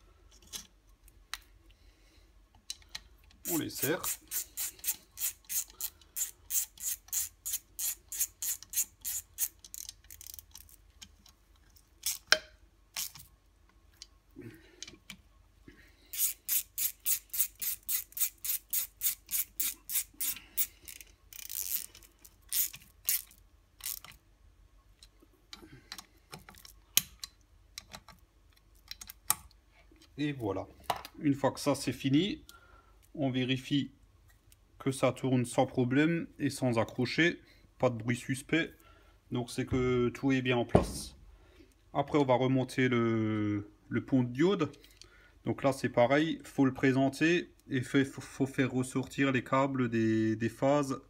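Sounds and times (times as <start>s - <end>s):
hand ratchet clicking: 3.4s - 10.8s, 16.1s - 24.2s.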